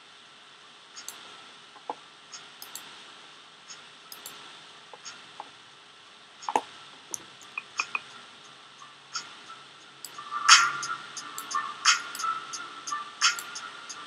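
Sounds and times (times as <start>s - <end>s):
faint steady hiss: 0.0s - 14.0s
computer mouse clicking: 1.0s - 1.2s, 2.4s - 2.9s, 3.7s - 4.4s, 6.4s - 8.2s, 11.3s - 12.3s, 13.2s - 13.6s.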